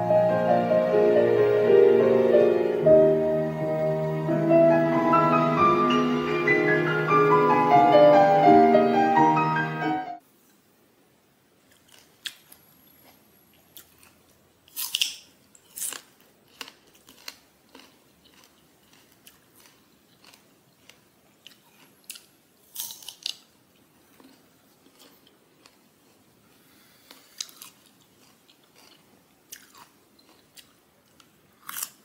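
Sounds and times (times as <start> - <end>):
crisp bites and chewing: 11.7 - 26.2, 27.0 - 32.0.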